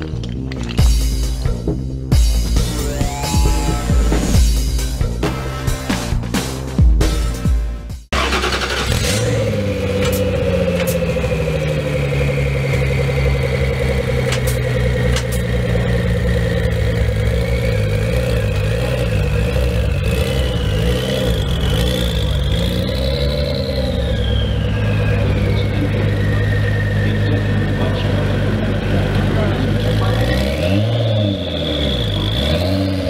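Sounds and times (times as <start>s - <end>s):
car engine idling: 0.0s - 33.0s
high whine: 2.4s - 5.6s, 9.4s - 32.5s.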